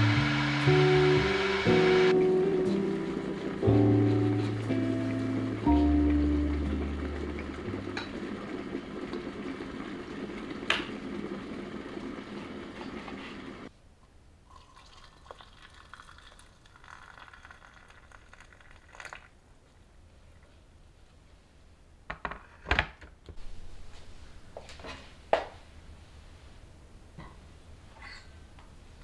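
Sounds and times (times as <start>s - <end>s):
soft background music: 0.0s - 8.6s
water pouring into glass: 14.5s - 19.3s.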